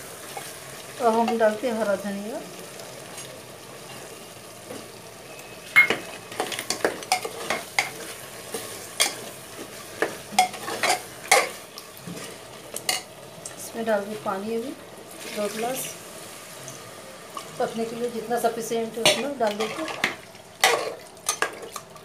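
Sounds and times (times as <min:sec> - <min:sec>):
masala sizzling: 0:00.0 - 0:22.0.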